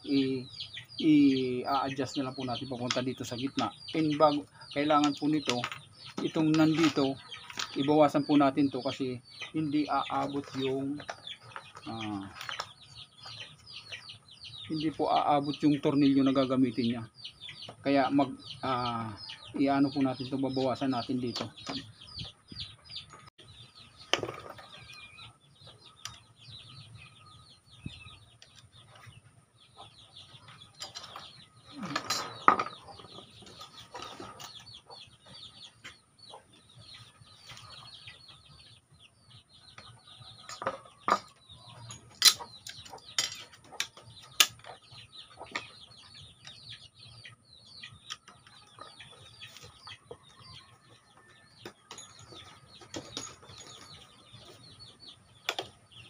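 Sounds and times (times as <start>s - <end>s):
chickens clucking: 0.0s - 56.0s
wooden board and tools clattering: 5.0s - 7.9s, 24.0s - 24.8s, 30.8s - 34.7s, 40.4s - 45.8s, 51.2s - 54.8s.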